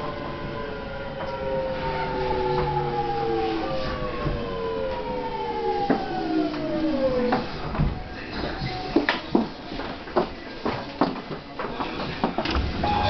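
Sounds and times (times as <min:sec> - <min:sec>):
platform hubbub: 0:11.5 - 0:13.0.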